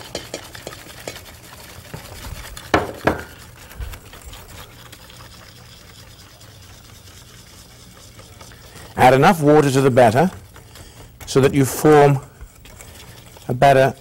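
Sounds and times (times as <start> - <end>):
utensils knocking against bowl: 0.0 - 1.3, 2.7 - 3.4.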